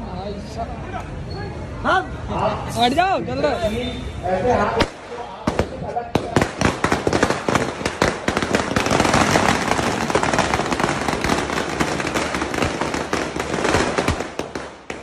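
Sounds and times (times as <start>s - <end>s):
firecrackers crackling: 4.7s - 15.0s.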